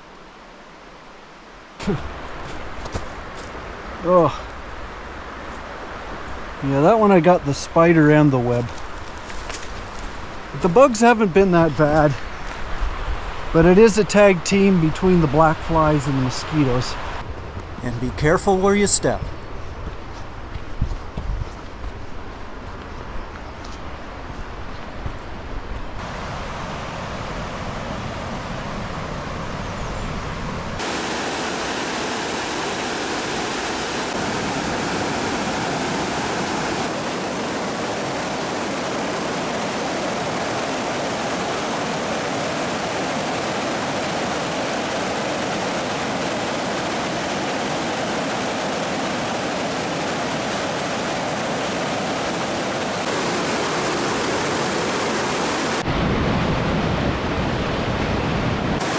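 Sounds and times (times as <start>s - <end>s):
river rapids and waterfall rushing: 17.8s - 19.2s, 30.8s - 58.9s.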